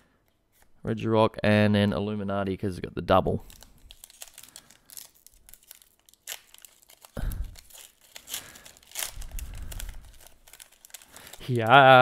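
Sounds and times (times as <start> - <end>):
foil wrapper crinkling: 3.4 - 12.0.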